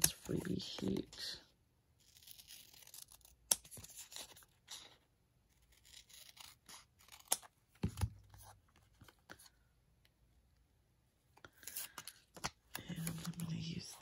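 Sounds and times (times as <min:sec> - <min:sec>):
scissors snipping paper: 0:02.0 - 0:05.0, 0:05.6 - 0:08.1.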